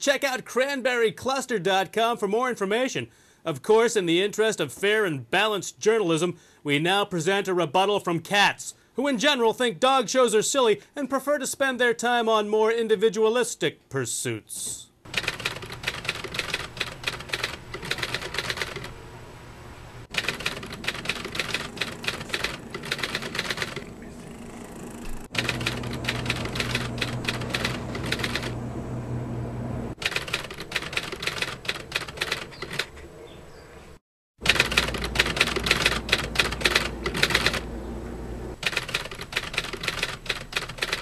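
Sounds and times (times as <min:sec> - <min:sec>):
rapid mechanical clicking: 0:15.1 - 0:18.9, 0:20.1 - 0:23.9, 0:24.7 - 0:28.6, 0:30.0 - 0:33.0, 0:34.4 - 0:37.6, 0:38.6 - 0:41.0
steady low hum: 0:15.1 - 0:31.3, 0:34.4 - 0:38.6.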